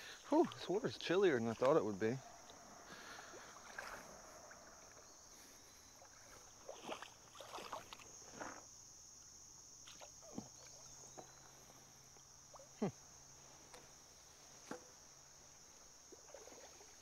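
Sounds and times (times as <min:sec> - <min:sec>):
wading in shallow water: 0:00.0 - 0:08.9, 0:09.7 - 0:17.0
high insect drone: 0:00.0 - 0:17.0.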